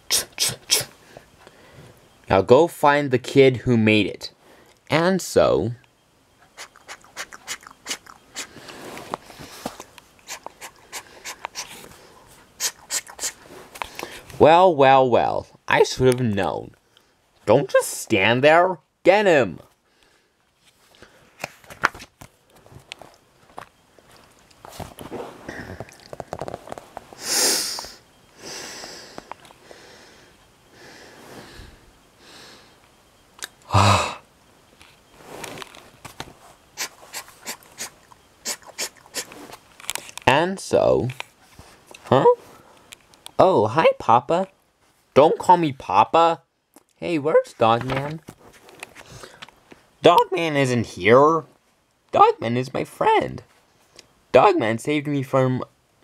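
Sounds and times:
sharp sniff: 0.1 - 1.0, 6.6 - 12.0, 12.6 - 14.3, 36.8 - 39.5
short voiced throat sound: 0.1 - 1.0
person breathing: 1.0 - 2.0, 8.3 - 9.8, 10.6 - 12.3, 25.4 - 26.1, 27.2 - 32.8, 49.0 - 49.5
paper pages rustling: 21.4 - 25.4, 47.6 - 49.4.

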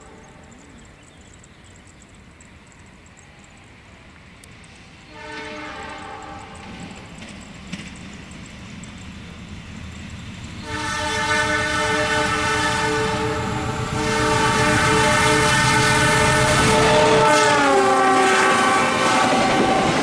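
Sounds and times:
train running rumble: 0.0 - 20.0
train horn blasts: 5.1 - 6.8, 10.6 - 20.0.

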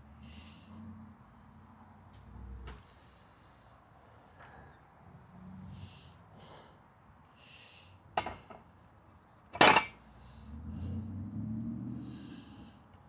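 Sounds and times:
sharp breaths: 0.0 - 1.0, 2.8 - 8.7, 10.0 - 13.0.

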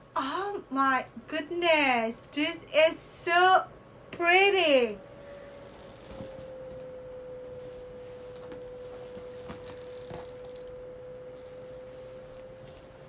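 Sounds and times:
pure whistle-like tone: 5.0 - 13.0.

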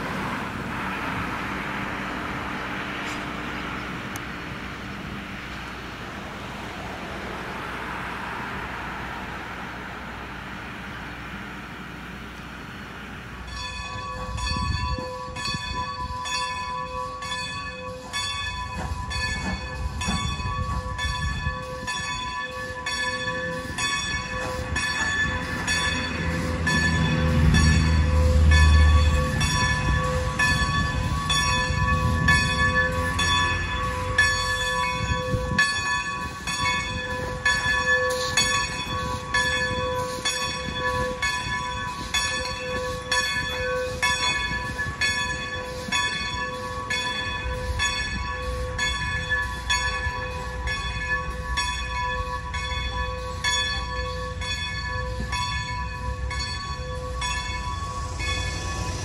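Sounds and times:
locomotive bell ringing: 0.0 - 59.0
locomotive low rumble: 0.0 - 59.0.

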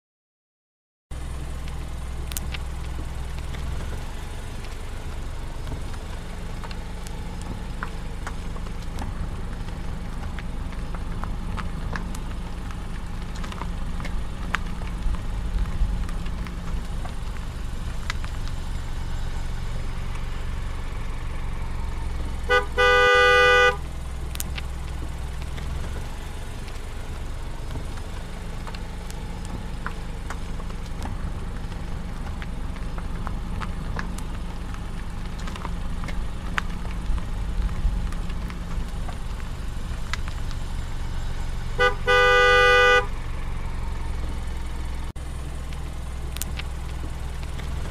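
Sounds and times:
car interior road noise: 1.1 - 47.9
car horn: 22.4 - 23.9, 41.7 - 43.3.

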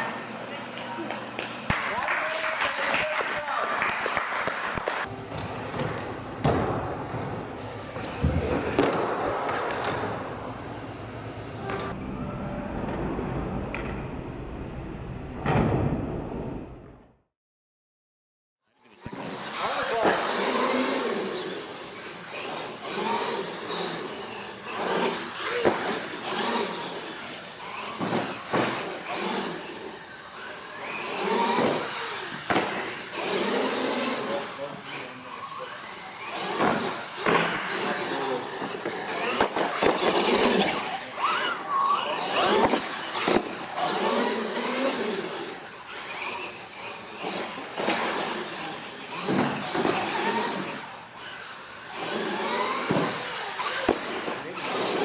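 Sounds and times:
toy truck motor whining: 18.8 - 55.0
wheel and floor noise: 18.9 - 55.0.

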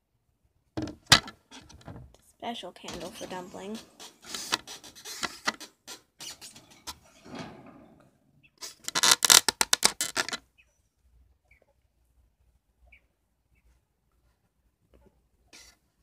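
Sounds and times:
faint bird chirps: 10.5 - 11.8, 12.8 - 13.8.

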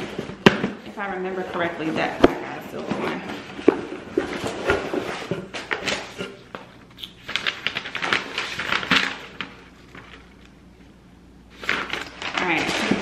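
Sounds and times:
packaging rustling and crinkling: 0.0 - 10.6, 11.5 - 13.0.

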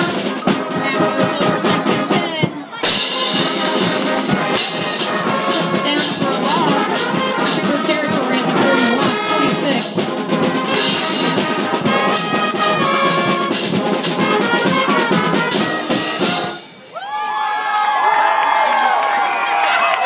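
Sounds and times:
pep band playing brass and drums: 0.0 - 16.9
voices whooping and cheering: 16.8 - 20.0.

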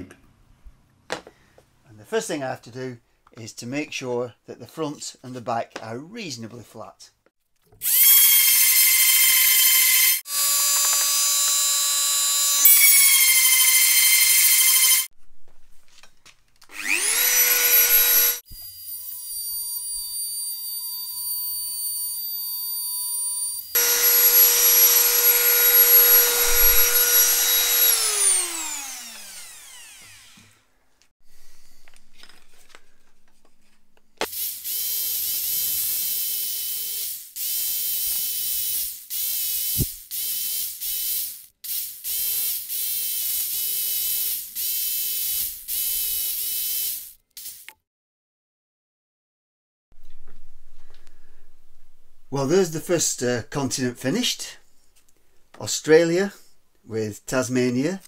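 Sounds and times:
power tool motor spinning: 7.8 - 15.1, 16.7 - 20.1, 23.2 - 30.7, 34.2 - 47.7
scroll saw running: 7.8 - 15.1, 16.7 - 18.4, 23.6 - 30.7, 34.2 - 47.8.

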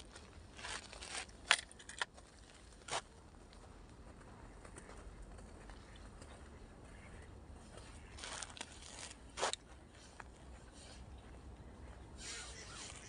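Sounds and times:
rustles and clicks of fishing tackle: 0.0 - 6.5, 7.7 - 11.1.

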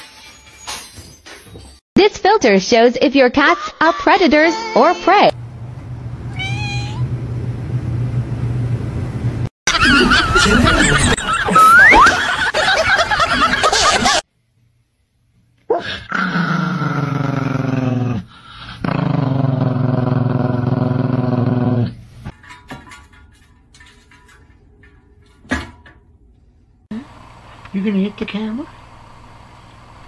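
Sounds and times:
dog high-pitched calls and squeal: 10.9 - 12.2
dog growling: 15.7 - 22.0.

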